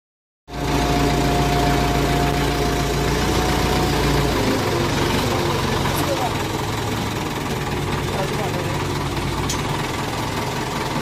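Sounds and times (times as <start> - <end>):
loader engine idling: 0.5 - 11.0
thin steady whine: 0.6 - 6.4.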